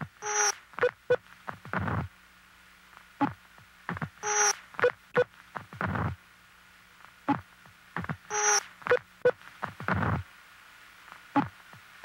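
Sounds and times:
faint steady hum: 0.0s - 12.0s
loud noisy blip with buzzing tone: 8.3s - 9.0s.

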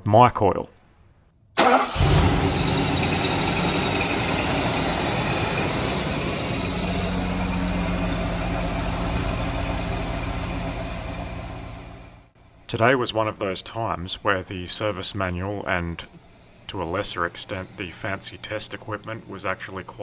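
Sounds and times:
car engine idling: 1.6s - 12.4s.

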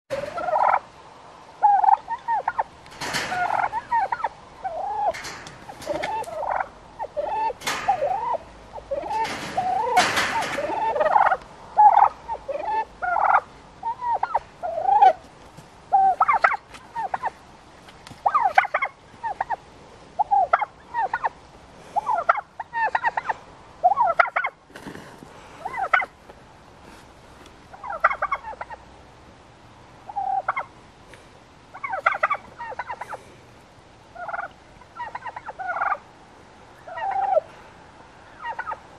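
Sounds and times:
turkeys short pitched calls: 0.1s - 0.8s, 1.6s - 15.3s, 15.9s - 17.3s, 18.2s - 19.6s, 20.2s - 21.4s, 22.0s - 24.6s, 25.6s - 26.1s, 27.7s - 28.8s, 30.1s - 30.7s, 31.7s - 33.2s, 34.2s - 36.0s, 36.8s - 37.5s, 38.3s - 38.8s
turkey rattling gobbles: 1.6s - 13.4s.

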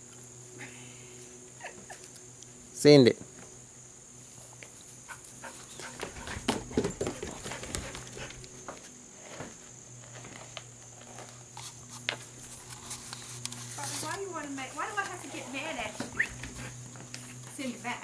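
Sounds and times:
dog claws clattering on wooden deck: 5.4s - 8.5s.

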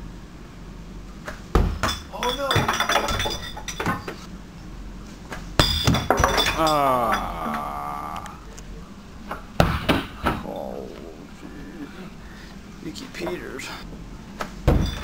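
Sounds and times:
ball thudding: 1.3s - 2.1s
glass bottles clinking: 1.8s - 4.1s, 5.6s - 7.8s, 14.7s - 15.0s
person crying out: 6.4s - 8.5s, 10.4s - 11.4s.

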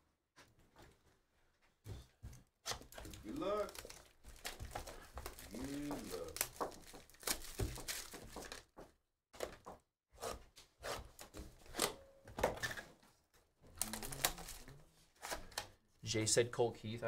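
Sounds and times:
plastic wrapping crinkling and tearing: 2.8s - 8.7s, 13.7s - 15.6s
cardboard knocks: 4.6s - 8.6s.

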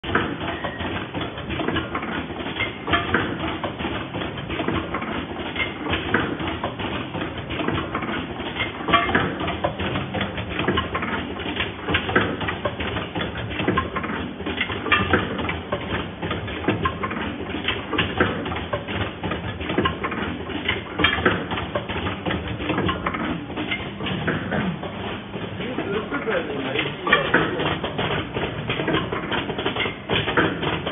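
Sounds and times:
sharp machine clicks and clacks: 0.0s - 30.9s
metal parts rattling in bowl feeder: 22.6s - 30.9s.

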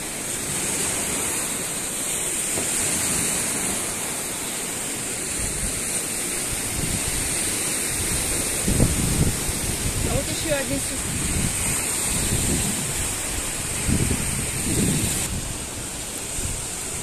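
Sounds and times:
lake waves washing shore: 0.0s - 17.0s
wind buffeting microphone: 5.2s - 17.0s
wind rushing: 6.5s - 17.0s.

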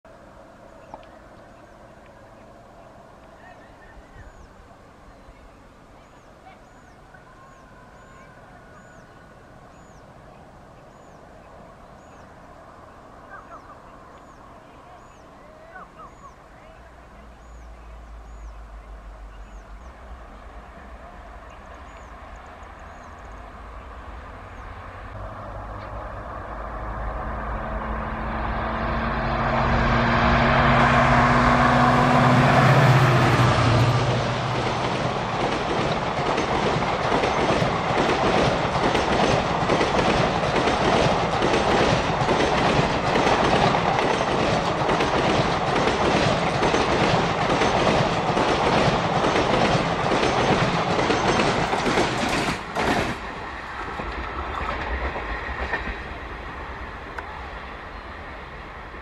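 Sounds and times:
diesel locomotive engine: 0.1s - 59.0s
train wheels clickety-clack: 32.6s - 56.5s.

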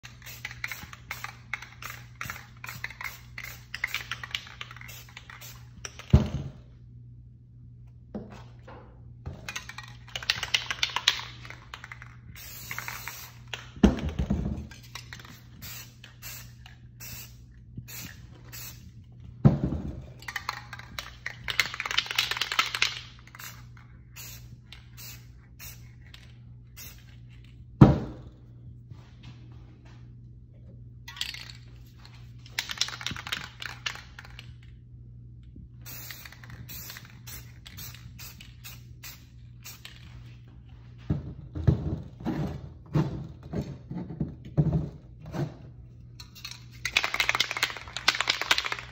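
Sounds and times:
spray-paint cans hissing: 0.0s - 6.1s, 9.5s - 13.7s, 14.7s - 19.0s, 20.3s - 27.2s, 35.8s - 40.3s, 46.4s - 48.9s.

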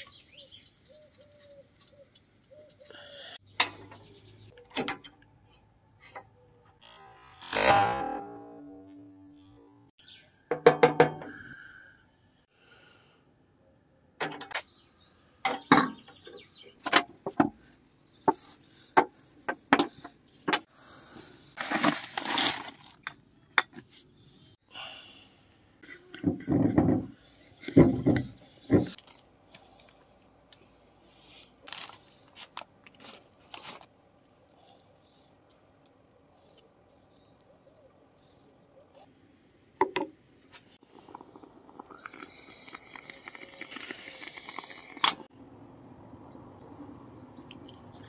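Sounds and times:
paper wrapper rustling: 21.6s - 23.1s, 31.5s - 34.4s.

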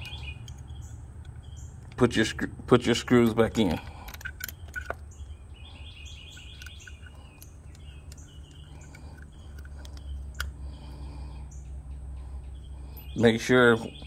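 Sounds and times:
faint metal clicks: 0.0s - 2.2s, 3.1s - 5.4s, 6.1s - 10.6s
birds chirping: 0.0s - 14.0s
low steady hum: 0.0s - 14.0s.

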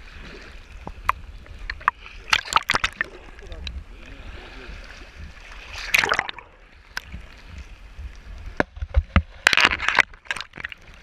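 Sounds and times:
seawater splashing and sloshing: 0.0s - 11.0s.

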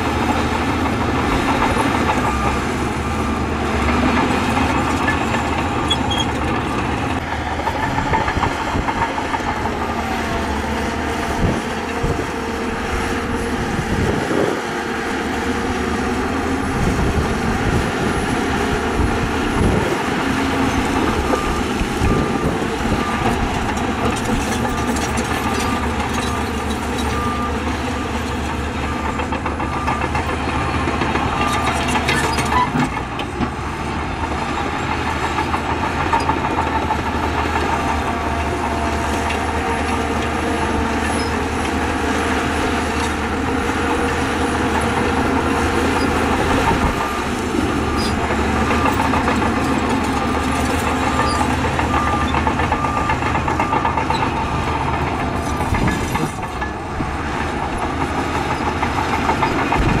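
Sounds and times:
heavy diesel machinery running: 0.0s - 60.0s.

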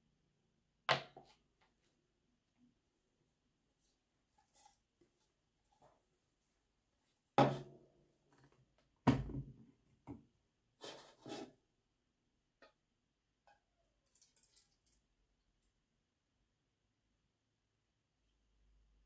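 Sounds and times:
liquid trickling into jug: 14.0s - 15.1s.

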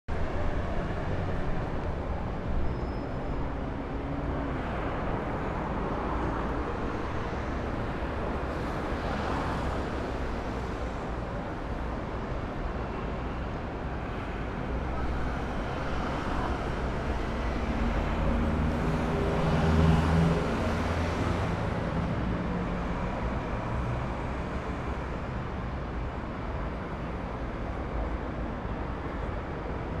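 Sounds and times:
vehicles passing: 0.1s - 30.0s.

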